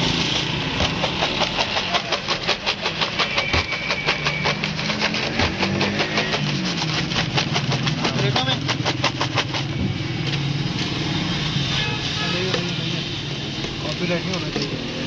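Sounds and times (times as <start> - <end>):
fries rattling in plastic bowl: 0.1 - 11.0.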